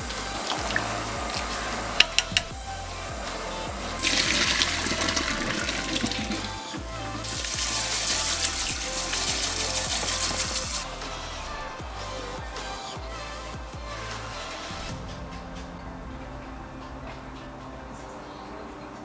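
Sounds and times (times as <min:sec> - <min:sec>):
background music: 0:00.0 - 0:19.0
sharp clicks: 0:02.0 - 0:02.5
tap water running into colander: 0:04.0 - 0:06.5, 0:07.2 - 0:10.8.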